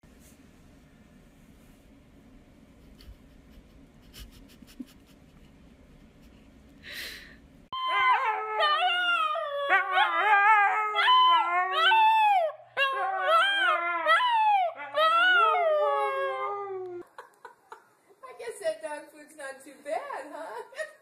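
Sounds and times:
puppy howling: 7.8s - 17.0s.

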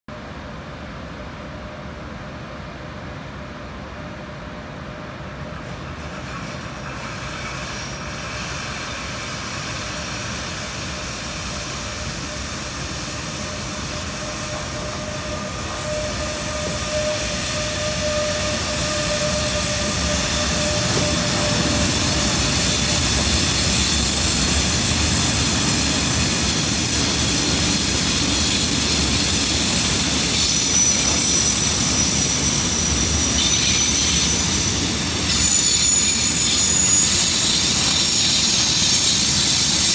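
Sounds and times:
train wheels rumbling on rail: 0.1s - 39.9s
locomotive whine: 8.8s - 39.9s
thin high squeals: 11.2s - 39.9s.

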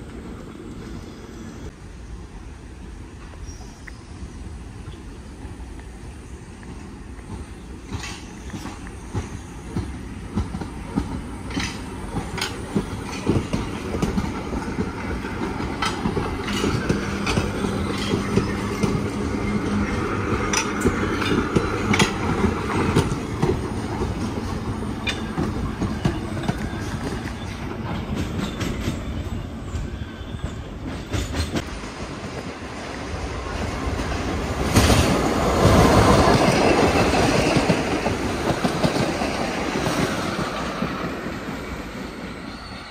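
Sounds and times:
train rumble: 0.0s - 42.9s
train wheels clacking over rail joints: 6.6s - 31.7s, 33.6s - 41.6s.

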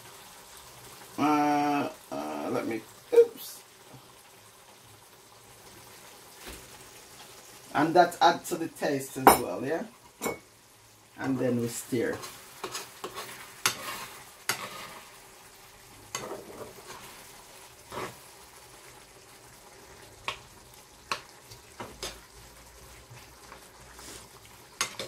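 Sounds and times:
sauce sizzling: 0.0s - 25.0s
spoon scraping and clinking pan: 10.2s - 10.5s, 12.1s - 15.0s.

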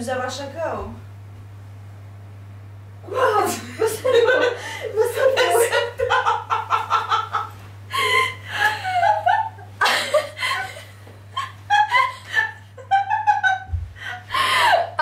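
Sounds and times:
woman laughing: 3.2s - 15.0s.

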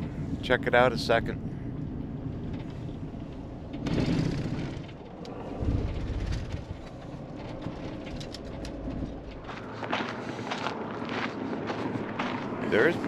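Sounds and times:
van engine rumble: 0.0s - 12.7s
vehicle jolt: 2.0s - 9.5s
tyres on gravel: 3.8s - 13.0s.

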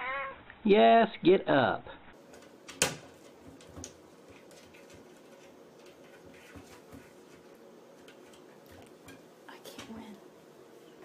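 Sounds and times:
cat paws tapping cabinet door: 2.3s - 7.2s.

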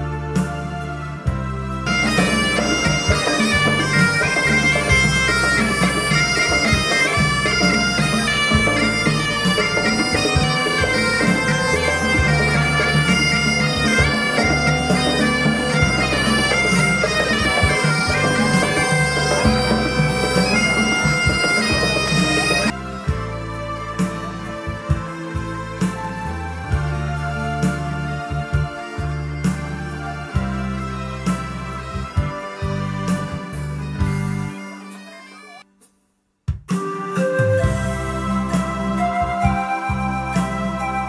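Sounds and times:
drums beating: 1.3s - 23.2s, 36.5s - 38.7s
bagpipes playing marching tune: 1.8s - 22.8s, 31.6s - 35.6s.

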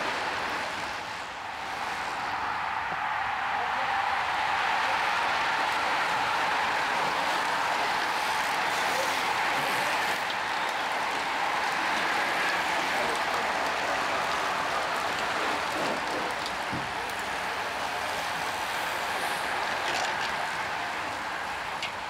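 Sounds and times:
bicycles riding past: 0.0s - 22.0s.

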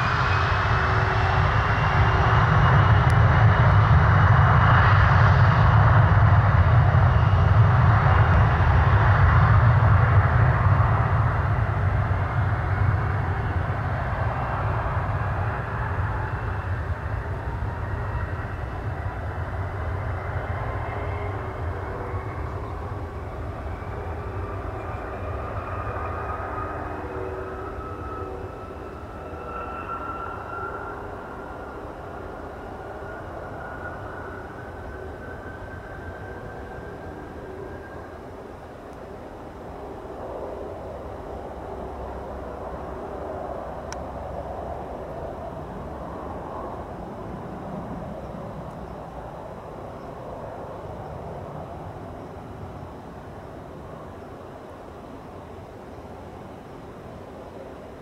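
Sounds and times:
jet engine low rumble: 0.0s - 58.0s
thin whine rising in pitch: 12.2s - 39.6s.

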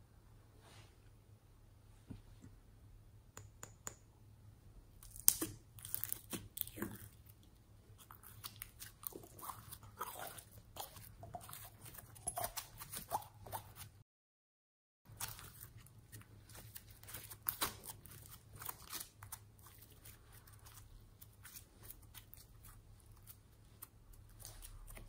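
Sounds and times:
slime crackling and popping: 5.0s - 7.0s.

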